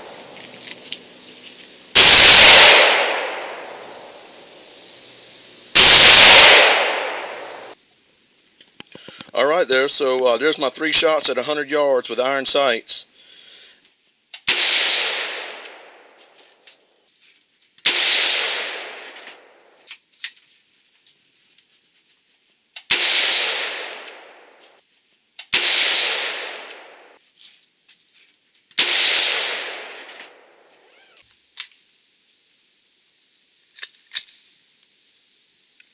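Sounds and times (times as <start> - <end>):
rifle shots: 2.0 - 4.2, 5.8 - 7.8, 14.4 - 16.0, 17.8 - 19.4, 22.9 - 24.4, 25.5 - 27.2, 28.8 - 30.5.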